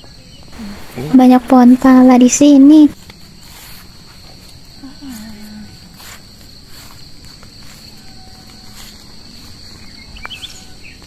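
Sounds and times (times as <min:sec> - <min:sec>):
crickets chirping chorus: 0:00.0 - 0:11.0.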